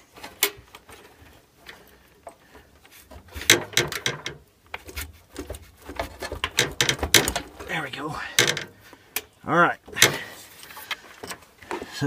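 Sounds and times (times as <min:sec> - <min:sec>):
metal and plastic clicks and scrapes: 0:00.0 - 0:07.7, 0:08.3 - 0:09.3.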